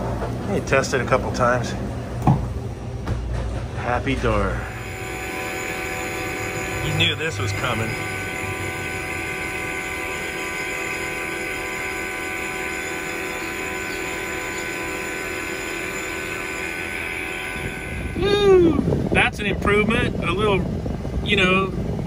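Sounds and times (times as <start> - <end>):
machinery hum: 0.0 - 22.0
low rumble: 16.5 - 21.2.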